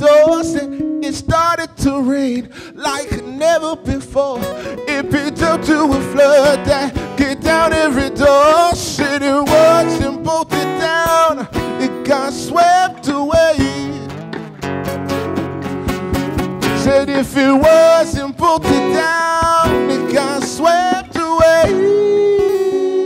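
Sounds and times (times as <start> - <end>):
man singing: 0.0 - 14.4, 16.6 - 23.0
strummed acoustic guitars: 0.0 - 23.0
drums keeping a steady beat: 2.9 - 23.0.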